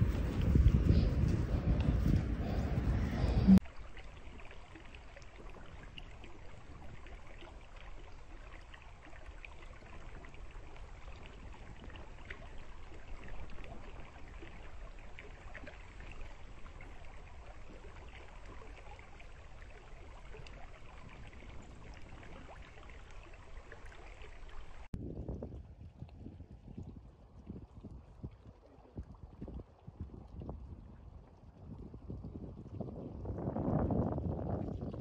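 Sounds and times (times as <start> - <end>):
low rumble: 0.0 - 3.6
stream babbling over stones: 3.5 - 25.5.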